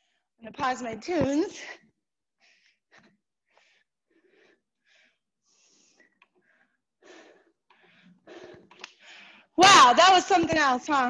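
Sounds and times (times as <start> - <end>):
woman breathing quickly: 0.0 - 0.4, 1.7 - 9.6.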